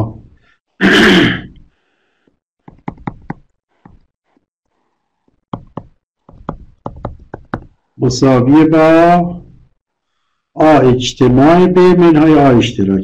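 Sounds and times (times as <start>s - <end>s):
pen tapping on a board: 2.6s - 4.0s, 5.5s - 7.8s.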